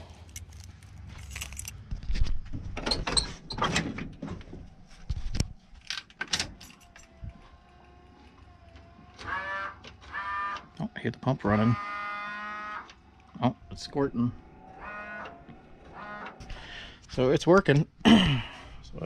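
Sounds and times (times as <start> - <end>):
handling clicks and rattles: 0.2 - 9.2
washer pump whine: 6.5 - 16.9.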